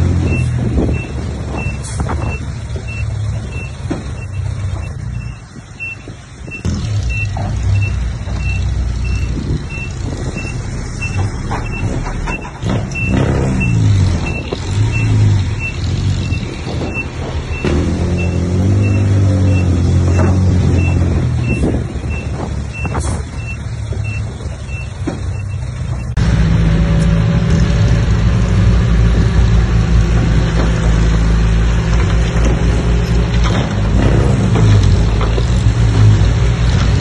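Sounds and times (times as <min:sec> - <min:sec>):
bulldozer diesel engines: 0:00.0 - 0:37.0
reversing alarm beeping: 0:13.0 - 0:26.2.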